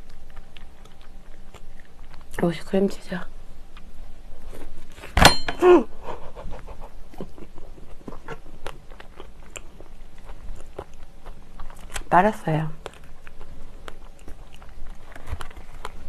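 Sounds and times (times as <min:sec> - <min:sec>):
close-miked chewing: 0:00.0 - 0:03.0, 0:06.0 - 0:16.0.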